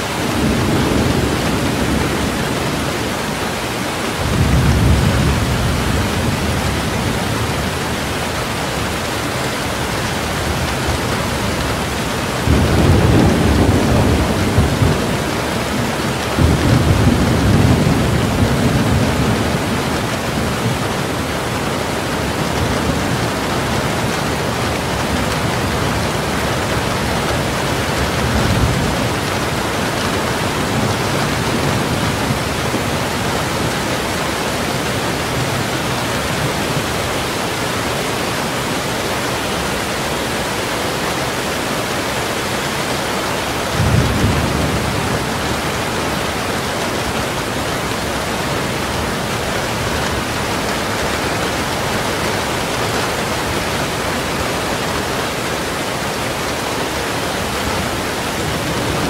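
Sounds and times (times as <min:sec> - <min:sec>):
heavy rain on window glass: 0:00.0 - 0:59.0
low rumbles of thunder: 0:11.8 - 0:34.2, 0:43.7 - 0:50.9.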